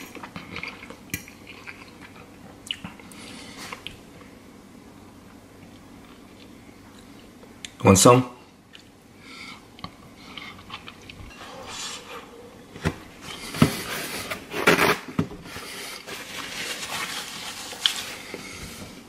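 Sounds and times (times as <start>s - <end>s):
person chewing: 0.0s - 4.0s, 9.6s - 12.1s
paper napkin rustling: 13.4s - 18.9s.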